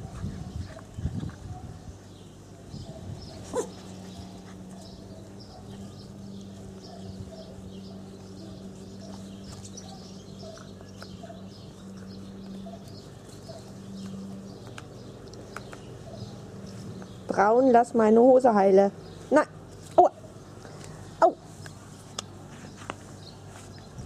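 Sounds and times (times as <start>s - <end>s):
puppies squeaking and yapping: 2.6s - 17.0s
puppy yelp: 2.9s - 3.9s.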